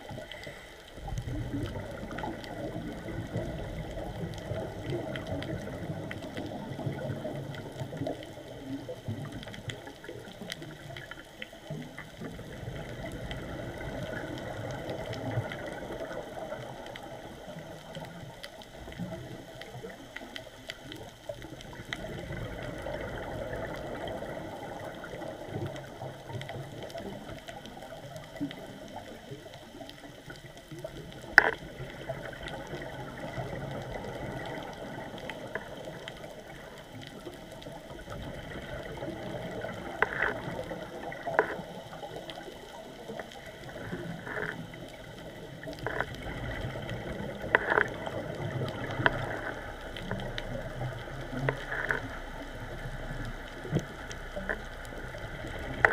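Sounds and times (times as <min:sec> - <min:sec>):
faint scattered clicks: 0:00.0 - 0:55.9
underwater water noise: 0:00.0 - 0:55.9.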